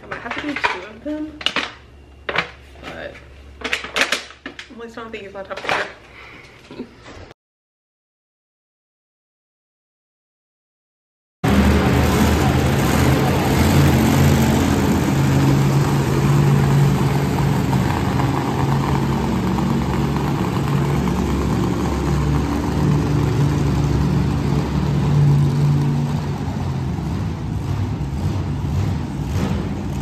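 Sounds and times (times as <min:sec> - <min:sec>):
monster truck engines running: 0:11.4 - 0:30.0.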